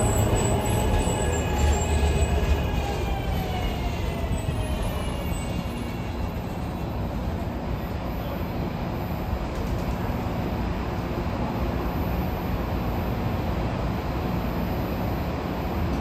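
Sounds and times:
train wheels rumbling on rails: 0.0s - 11.1s.

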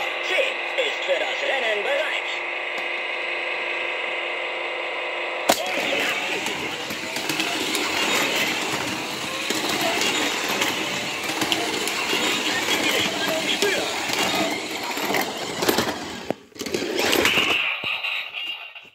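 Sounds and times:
electronic race sounds: 5.5s - 15.6s
toy cars whirring: 5.5s - 18.9s.

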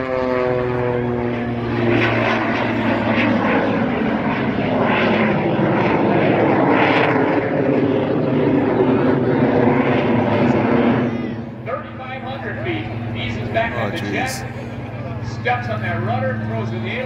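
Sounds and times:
biplane engine passing overhead: 0.0s - 17.0s.

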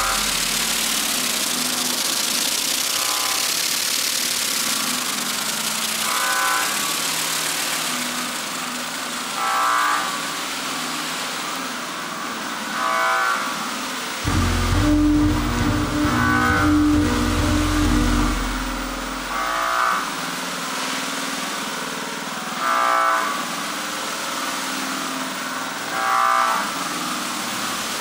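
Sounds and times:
buzzy synthesizer tones: 0.0s - 2.4s, 14.3s - 19.7s.

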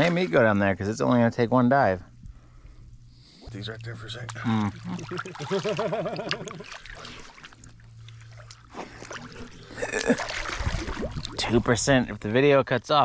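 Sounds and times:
river water sloshing and lapping: 0.0s - 0.6s, 3.5s - 11.8s
water splashing: 0.0s - 0.6s, 3.5s - 12.0s
wavering voice-like hum: 3.5s - 5.5s.

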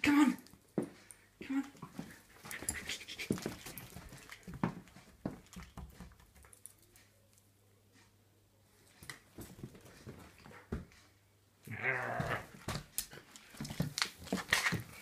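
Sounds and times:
dog scuffling with toy: 2.0s - 6.1s, 13.5s - 15.0s.

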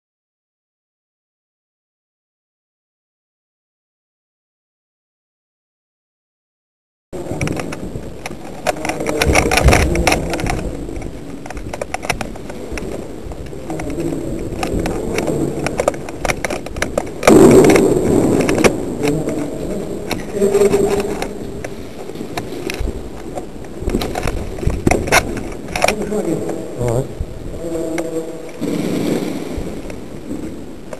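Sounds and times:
clicks knocks and rustling: 7.4s - 26.1s.

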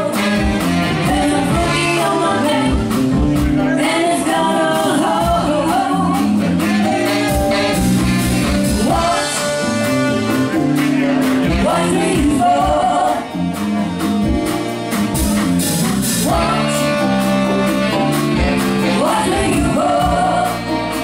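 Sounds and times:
woman singing: 0.0s - 3.0s, 3.6s - 6.7s, 11.5s - 13.4s, 18.8s - 21.0s
funk band playing: 0.0s - 21.0s
drum beat: 5.2s - 20.8s.

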